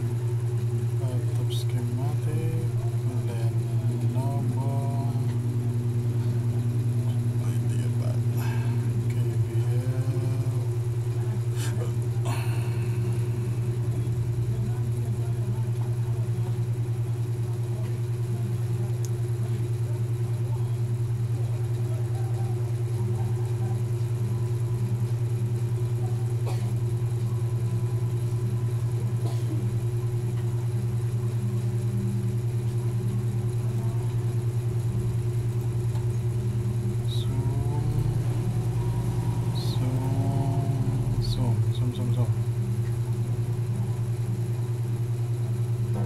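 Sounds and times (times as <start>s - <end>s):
low mechanical hum: 0.0s - 46.0s
faint background voices: 6.1s - 25.2s.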